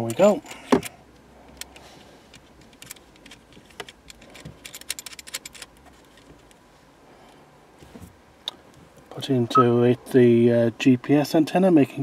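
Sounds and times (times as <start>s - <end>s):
cable plugs clicking and rattling: 0.0s - 0.9s, 1.5s - 6.6s.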